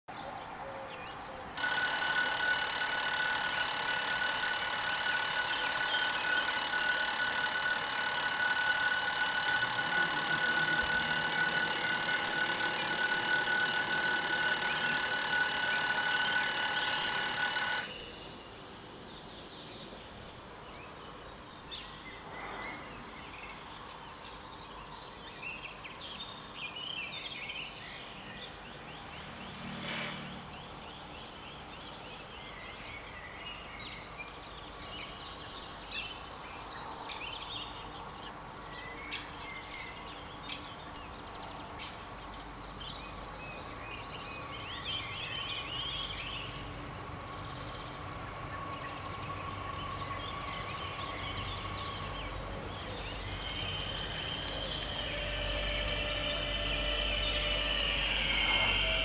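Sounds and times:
faint outdoor background: 0.1 - 59.0
level-crossing warning bells ringing: 1.6 - 18.6, 48.0 - 59.0.

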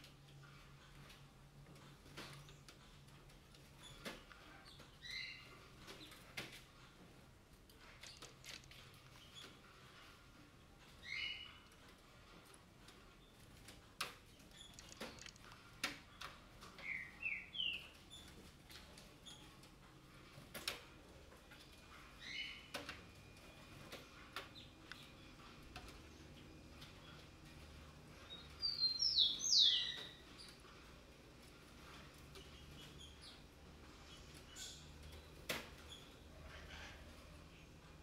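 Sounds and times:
sharp clicks: 14.7 - 16.0
parakeets calling: 28.2 - 30.5.

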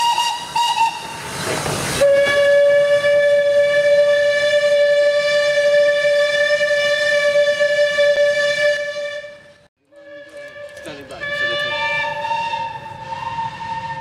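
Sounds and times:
steam locomotive whistle blasts: 0.0 - 1.4, 2.0 - 14.0
steam hissing: 0.0 - 4.4.

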